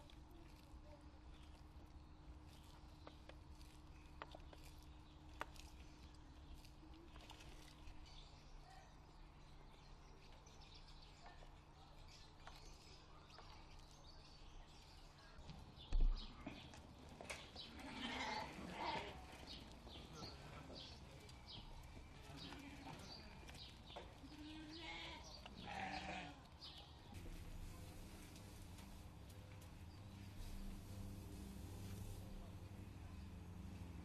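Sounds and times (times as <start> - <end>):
goats and sheep bleating: 17.7 - 19.2, 24.4 - 26.4.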